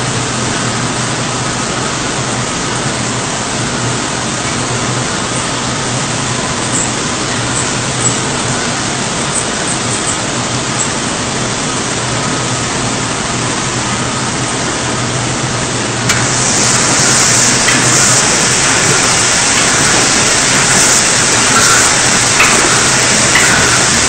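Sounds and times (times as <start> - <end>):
machinery hum: 1.0 - 24.0
loud high hiss: 15.7 - 24.0
hiss of spraying: 16.1 - 24.0
machine click: 16.1 - 24.0.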